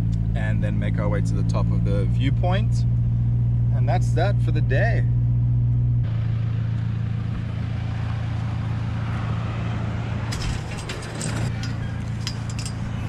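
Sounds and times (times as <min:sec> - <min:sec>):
metal gate clinking and rattling: 0:10.3 - 0:13.0.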